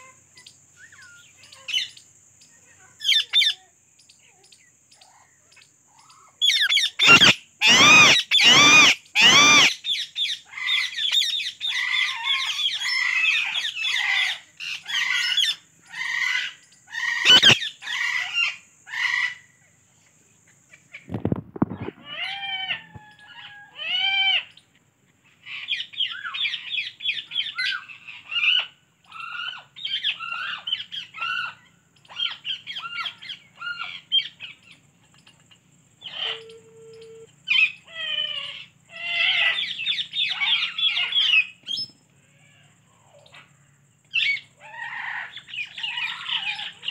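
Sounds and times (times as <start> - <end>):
parakeet chattering: 6.4 - 9.7, 17.2 - 17.6
parakeet squawks: 6.4 - 14.3, 15.0 - 19.4.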